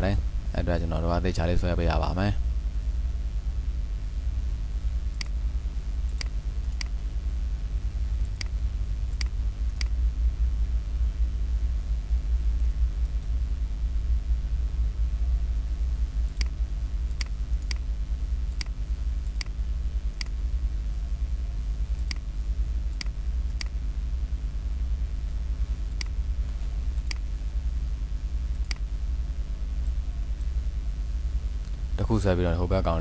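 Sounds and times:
steady low hum: 0.0s - 33.0s
computer mouse clicks: 5.1s - 5.4s, 6.0s - 7.0s, 8.2s - 10.0s, 16.3s - 17.9s, 18.5s - 20.4s, 21.9s - 22.3s, 22.9s - 23.8s, 25.9s - 26.2s, 27.0s - 27.3s, 28.5s - 28.9s.

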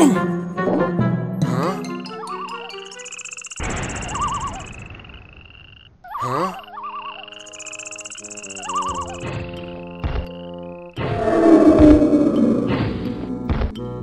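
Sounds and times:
high chirping calls: 2.1s - 10.9s
frogs croaking: 2.1s - 11.6s.

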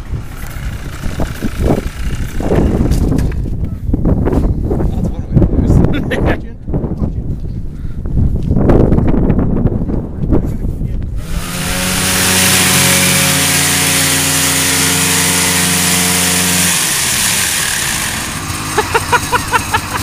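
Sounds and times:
snowmobile engine at high revs: 0.0s - 3.2s, 11.2s - 20.0s
rough gusting noise: 0.0s - 5.8s, 6.7s - 20.0s.

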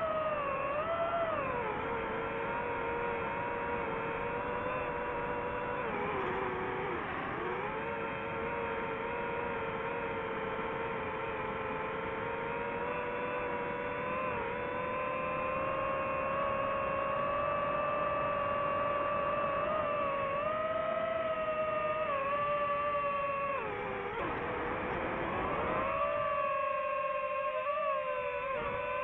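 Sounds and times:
drone propellers whining: 0.0s - 29.0s.

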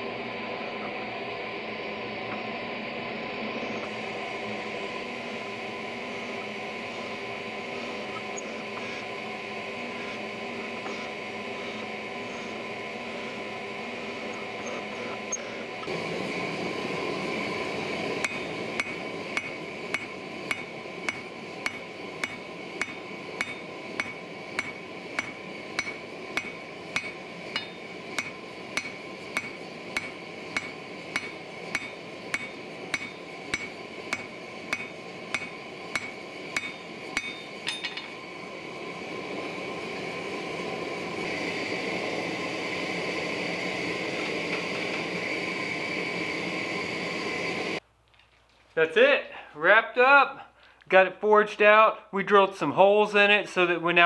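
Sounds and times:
drill press motor humming: 0.0s - 47.8s
gas forge rushing: 0.0s - 47.8s
hammer striking hot metal on anvil: 18.2s - 38.2s.

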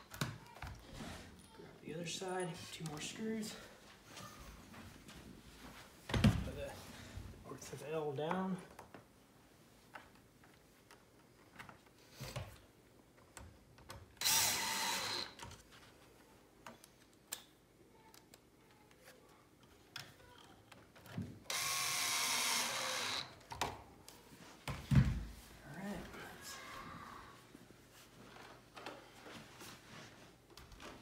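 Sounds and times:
cordless drill driving screws: 14.2s - 15.4s, 21.5s - 23.4s.

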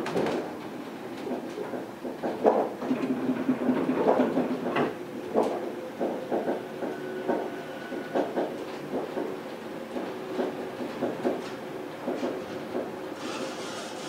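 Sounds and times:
train car clunks and knocks: 1.2s - 13.0s.

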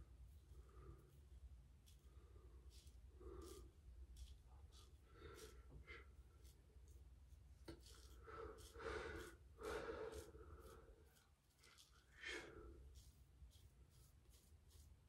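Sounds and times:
razor scratching over stubble: 0.3s - 15.0s
faint breathing: 0.4s - 6.6s, 7.9s - 13.1s.

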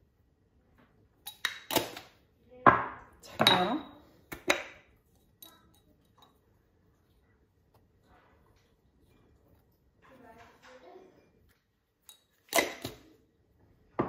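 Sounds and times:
glass jars clinking: 2.8s - 6.4s.

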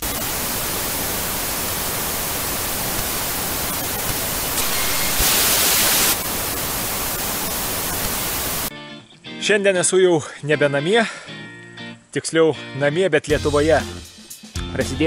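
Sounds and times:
static hiss: 0.0s - 8.7s.

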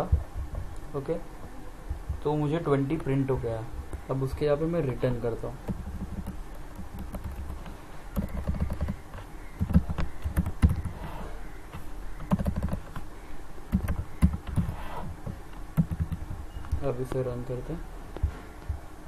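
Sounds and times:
low steady hum: 0.0s - 19.0s
computer keyboard typing: 5.6s - 11.0s, 11.7s - 13.1s, 13.7s - 16.9s.

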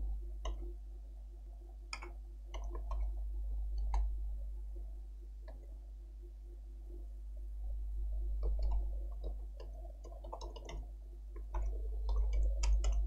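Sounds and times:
steady low hum: 0.0s - 13.0s
computer keyboard and mouse clicks: 1.9s - 3.1s, 8.4s - 13.0s.

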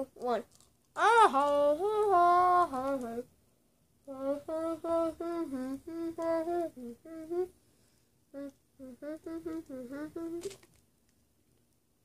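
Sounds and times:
boy humming through closed mouth: 1.0s - 3.2s, 4.1s - 7.6s, 8.3s - 10.6s.

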